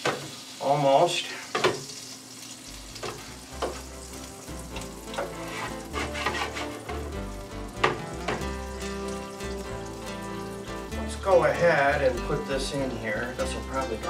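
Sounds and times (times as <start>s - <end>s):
butter sizzling in a skillet: 0.0s - 14.0s
utensil scraping pan: 5.1s - 7.1s
sharp knocks on pan: 7.8s - 8.5s.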